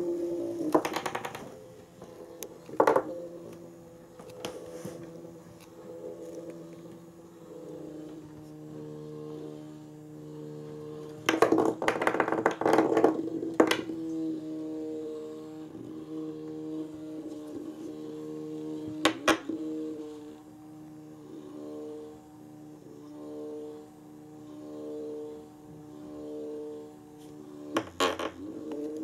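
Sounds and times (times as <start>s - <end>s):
toy motor whirring: 0.0s - 29.0s
toy rattling against wooden floor: 0.6s - 1.7s, 2.6s - 3.2s, 11.2s - 13.9s.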